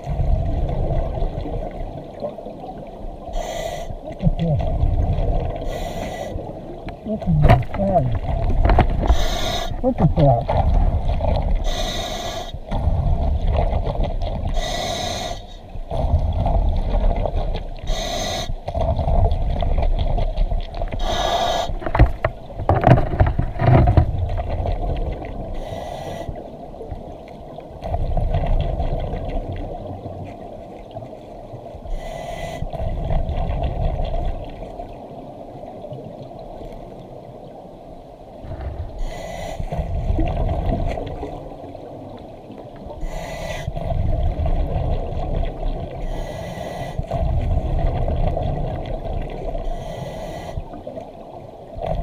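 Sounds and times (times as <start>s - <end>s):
exhaled bubbles underwater: 0.0s - 37.2s, 38.4s - 52.0s
low rumble of river water: 0.0s - 52.0s
knocks and scrapes: 7.4s - 9.8s, 20.9s - 24.6s.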